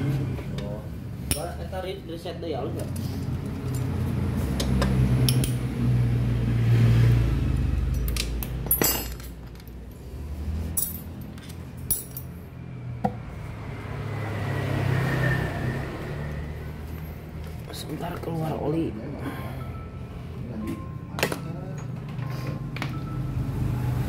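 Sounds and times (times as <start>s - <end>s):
metal tools clinking: 7.9s - 9.8s, 10.7s - 12.4s.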